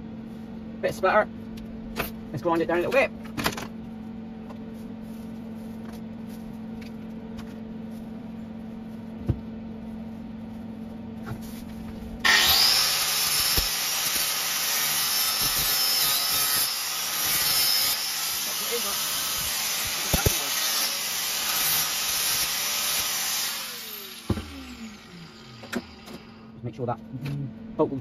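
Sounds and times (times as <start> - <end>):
steady low hum: 0.0 - 28.0
angle grinder grinding steel: 12.2 - 26.5.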